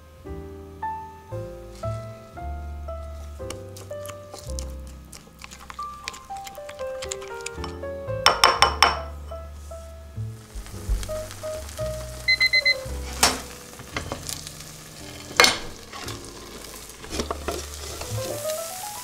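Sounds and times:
batter sizzling in a frying pan: 0:01.6 - 0:19.0
kitchen timer beeping: 0:12.2 - 0:12.9
plate and pan clattering: 0:13.0 - 0:14.4, 0:15.0 - 0:18.5.

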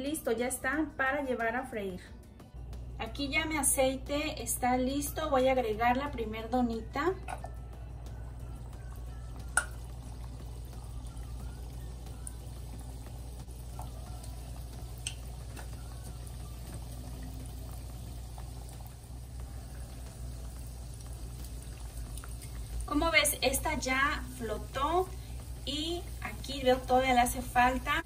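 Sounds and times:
low hum: 0:07.2 - 0:26.9
dough sizzling in hot oil: 0:08.4 - 0:28.0.

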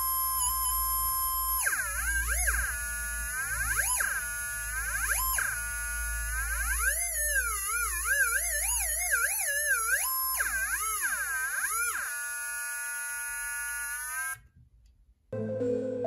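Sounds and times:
theremin electronic tone: 0:15.4 - 0:16.0.

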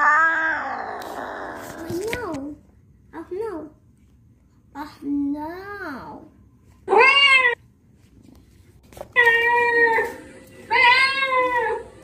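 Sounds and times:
cat meowing: 0:09.2 - 0:11.9.

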